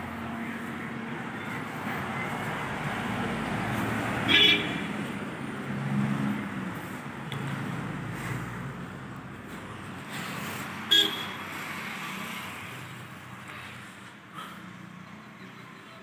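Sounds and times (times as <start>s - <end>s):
road traffic rumble: 0.0s - 16.0s
car horn toot: 4.3s - 4.9s, 10.9s - 11.4s.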